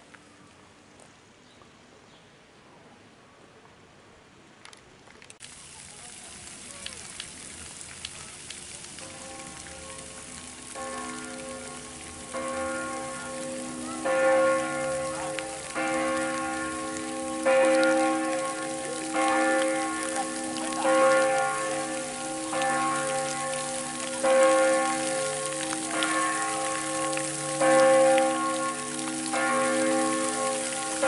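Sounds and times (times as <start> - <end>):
fountain water splashing: 5.1 - 31.0
church bells ringing: 9.0 - 31.0.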